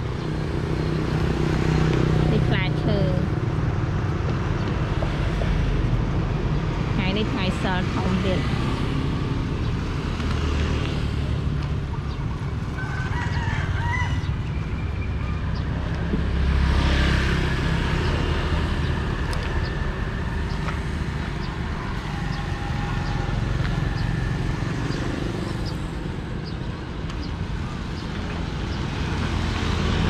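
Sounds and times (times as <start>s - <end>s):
motorbike engines: 0.0s - 30.0s
rooster crowing: 12.7s - 14.7s.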